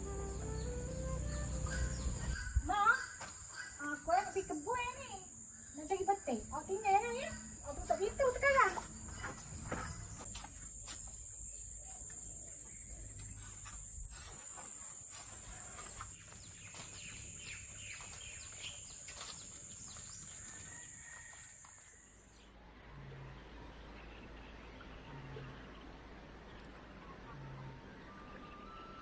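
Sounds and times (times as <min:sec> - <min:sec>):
high-pitched insect drone: 0:00.0 - 0:09.4.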